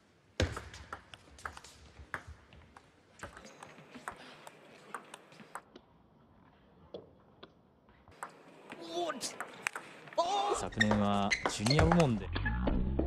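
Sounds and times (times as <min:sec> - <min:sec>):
table tennis ball clicking: 0:08.1 - 0:09.9.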